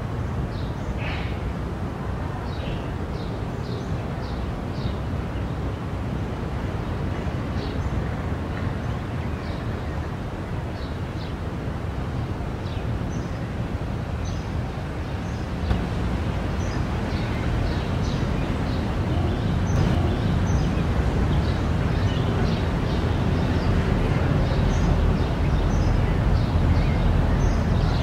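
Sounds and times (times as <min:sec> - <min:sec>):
road traffic rumble: 0:00.0 - 0:28.0
small birds chirping: 0:14.2 - 0:28.0.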